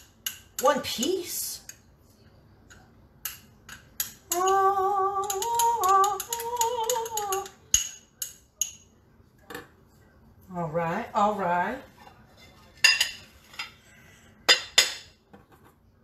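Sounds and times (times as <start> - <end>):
spoon tapping a ramekin: 0.2 - 0.6, 3.2 - 8.9
woman humming: 4.3 - 7.5.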